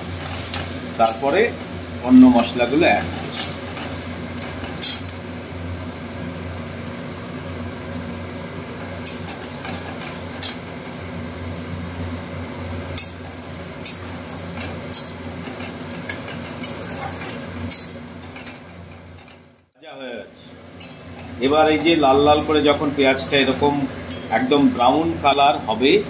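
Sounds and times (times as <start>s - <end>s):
onions sizzling in oil: 0.0s - 19.6s, 20.6s - 26.0s
spatula scraping metal pan: 13.0s - 19.4s, 20.8s - 23.1s, 24.1s - 25.6s.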